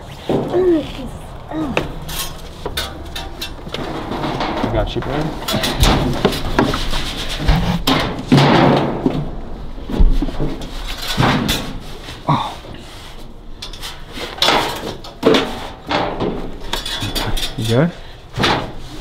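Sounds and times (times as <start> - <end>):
knocks and scrapes on plywood: 5.4 - 9.2.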